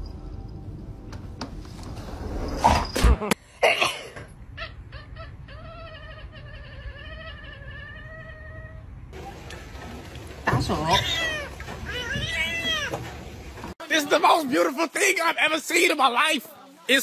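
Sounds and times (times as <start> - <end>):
cat yowling: 10.8 - 13.0.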